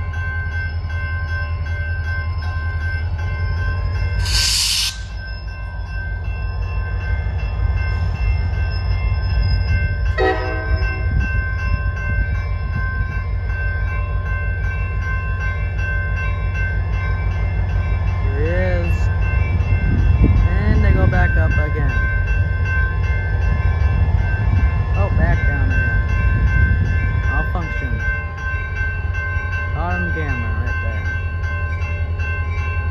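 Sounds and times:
crossing warning bell ringing: 0.0 - 32.9
diesel locomotive rumbling: 0.0 - 32.9
loud hiss: 4.2 - 5.2
train horn note: 10.2 - 10.8.

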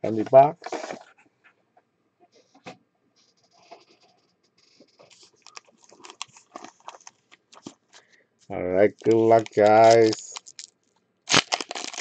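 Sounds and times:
plastic wrap crinkling: 4.8 - 8.1, 8.9 - 12.0.

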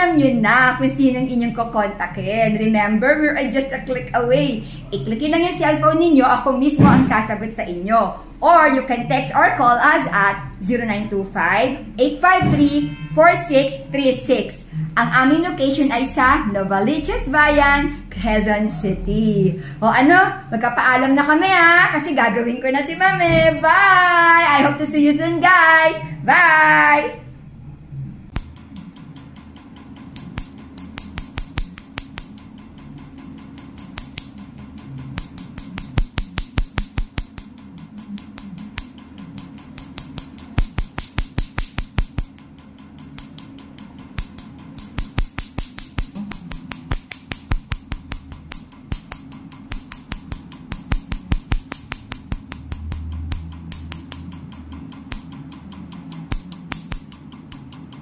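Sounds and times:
laser handpiece snapping clicks: 33.2 - 58.0.

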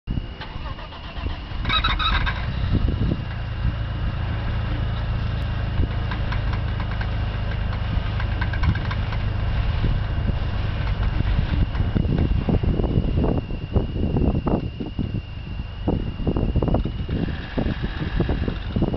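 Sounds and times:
car engine cranking and starting: 0.4 - 12.7, 16.8 - 18.9
car engine running: 0.6 - 18.9.

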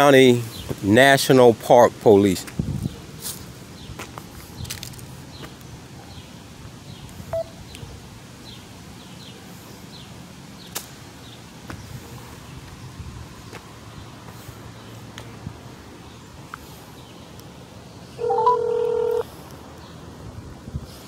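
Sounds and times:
outdoor background noise: 0.0 - 21.0
footsteps on gravel: 3.3 - 5.6
short beep: 18.2 - 19.2.

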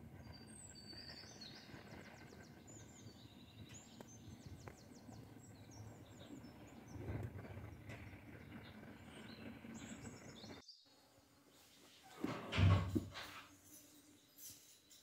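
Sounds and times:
low outdoor rumble: 0.0 - 10.6
small birds chirping and trilling: 0.0 - 15.0.

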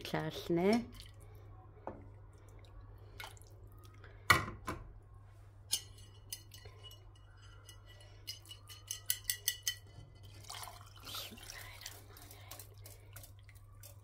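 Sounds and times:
utensils clinking against a bowl: 5.7 - 14.0.

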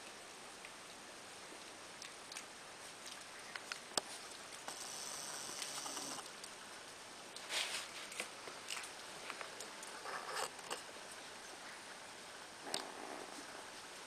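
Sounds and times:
puppies rustling in bedding: 7.4 - 10.4.

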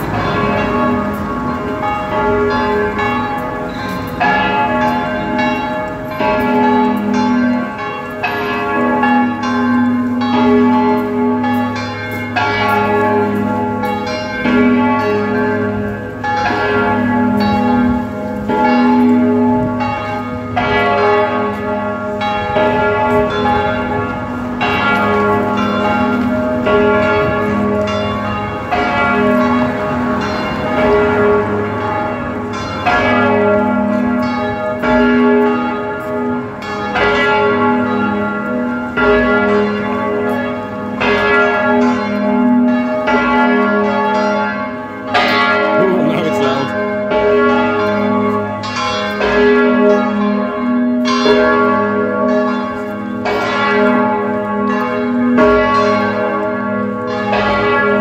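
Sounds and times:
church bells ringing: 0.0 - 58.0.

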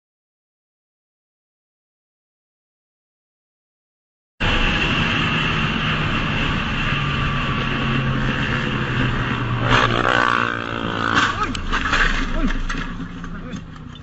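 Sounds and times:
motorcycle engine running: 7.6 - 11.6.

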